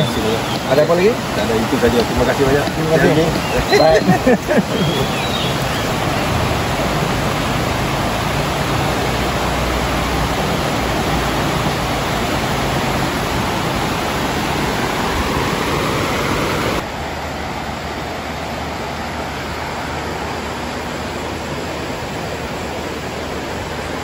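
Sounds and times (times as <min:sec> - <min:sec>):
river rushing over rocks: 0:00.0 - 0:24.0.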